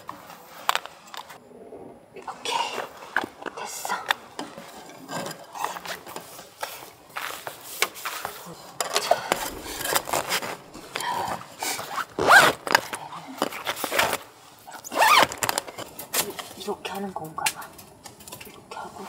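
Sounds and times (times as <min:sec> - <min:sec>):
tent zipper rasping: 0:09.3 - 0:11.2, 0:11.9 - 0:12.7.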